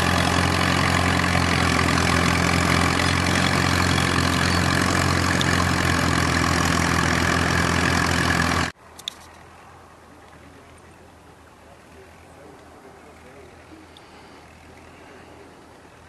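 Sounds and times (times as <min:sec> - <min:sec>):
tractor engine running: 0:00.0 - 0:08.8.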